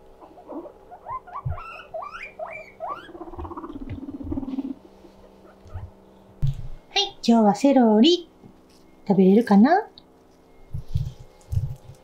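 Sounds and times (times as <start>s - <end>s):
guinea pig squealing: 0.2s - 6.0s.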